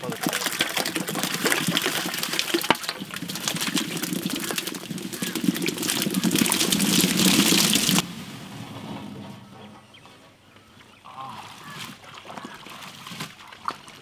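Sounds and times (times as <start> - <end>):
strawberries splashing into water: 0.0 - 8.0.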